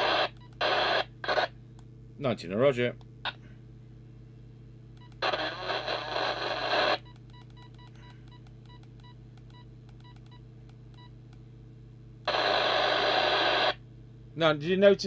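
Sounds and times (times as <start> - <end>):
keypad beeps: 5.0 - 5.2, 7.0 - 11.1
radio signal burst from speaker: 5.2 - 7.0, 12.3 - 13.8.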